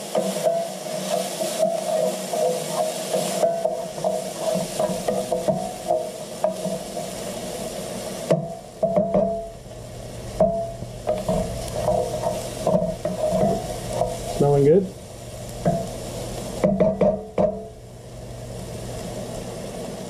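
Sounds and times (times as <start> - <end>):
bacon fat sizzling: 0.0 - 20.0
wooden spoon scraping metal pan: 0.1 - 7.2, 10.4 - 14.9.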